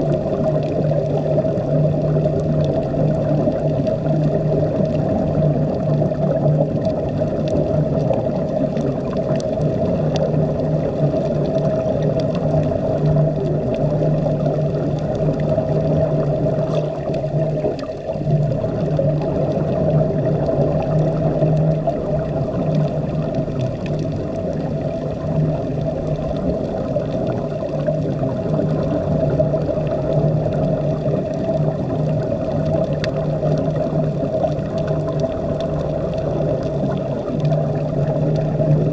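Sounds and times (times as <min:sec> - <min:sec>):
machine hum underwater: 0:00.0 - 0:38.9
water wash and bubbling: 0:00.0 - 0:38.9.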